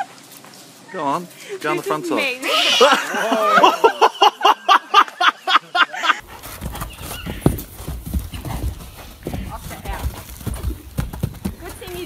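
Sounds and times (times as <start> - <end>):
person laughing hard: 2.4 - 6.2
hooves thudding on dirt: 6.2 - 12.0.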